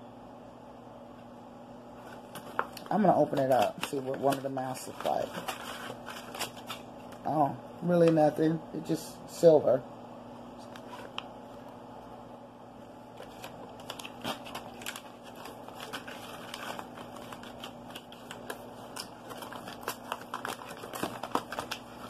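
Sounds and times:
faint steady hum: 0.0 - 22.0
foil packet crinkling: 2.0 - 7.3, 13.1 - 22.0.

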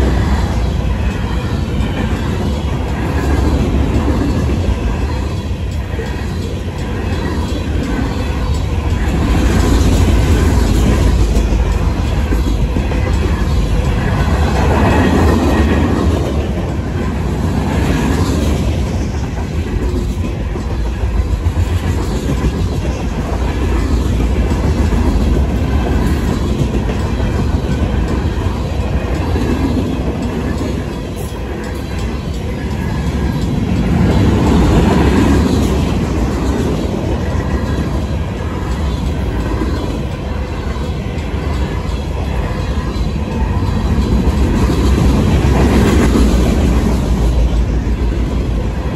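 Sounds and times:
crossing bells ringing: 0.0 - 17.3
train wheels clacking over rail joints: 0.0 - 48.9.

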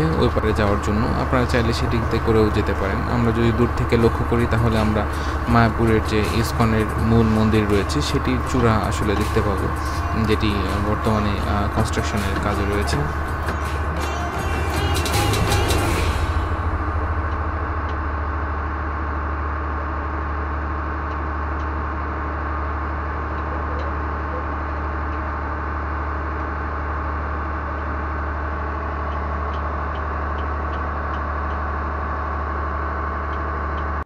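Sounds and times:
boat engine droning: 0.0 - 34.0.

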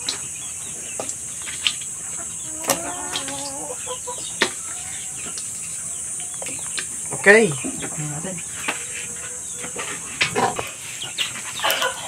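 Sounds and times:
insects chirring: 0.0 - 12.0
hen clucking: 2.1 - 6.7, 7.5 - 12.0.

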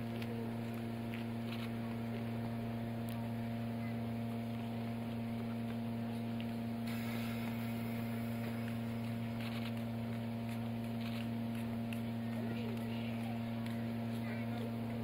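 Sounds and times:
steam locomotive humming: 0.0 - 15.0
high hiss of steam: 6.8 - 9.0.

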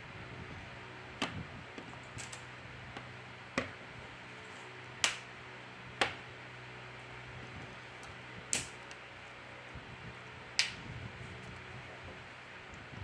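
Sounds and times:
faint steady hum: 0.0 - 13.0
plastic clips snapping in: 8.5 - 9.0.

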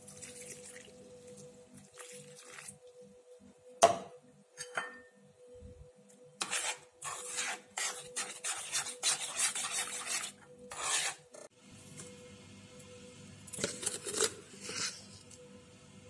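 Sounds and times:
metal spoon scraping a saucepan: 6.4 - 11.5, 13.6 - 15.3.

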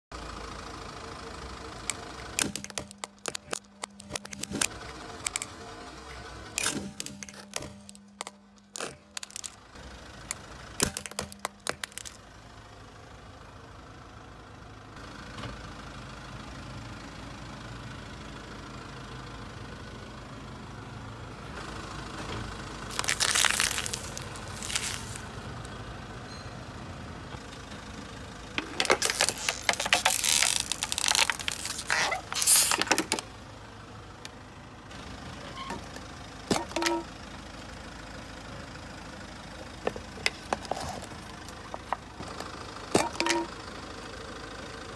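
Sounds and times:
car engine running quietly: 0.2 - 44.9
car tyre crushing objects: 1.9 - 5.6, 6.5 - 12.3, 22.8 - 25.4, 28.5 - 33.4, 36.5 - 37.1, 39.7 - 43.5
plastic toy cracking: 2.4 - 5.5, 6.6 - 9.6, 10.8 - 12.2, 22.9 - 25.2, 28.6 - 33.2
wax candles snapping: 22.9 - 25.2.

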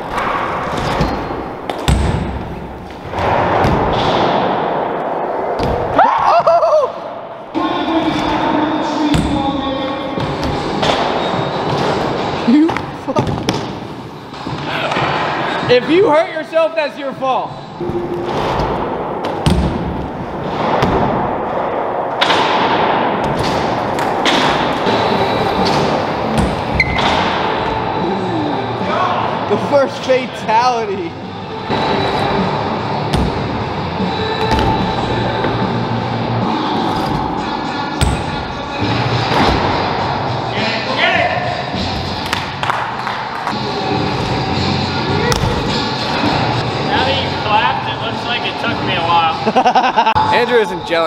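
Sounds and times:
bike thudding on ramp: 0.2 - 4.8.

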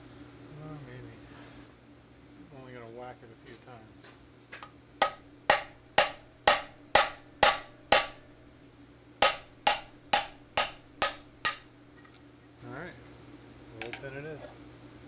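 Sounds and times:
hammer striking steel rod: 5.0 - 8.2, 9.2 - 11.7.

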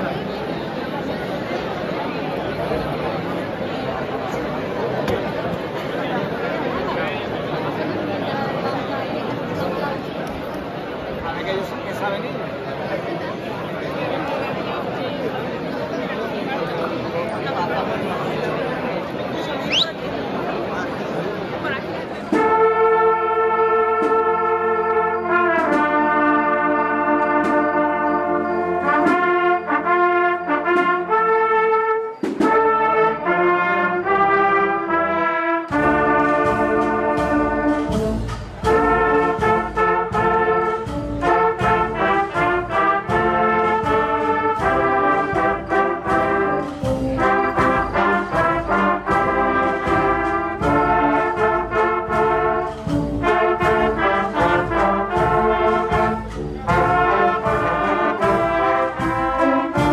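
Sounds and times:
brass band chords: 22.3 - 59.9
drums with steady beat: 35.7 - 59.9.

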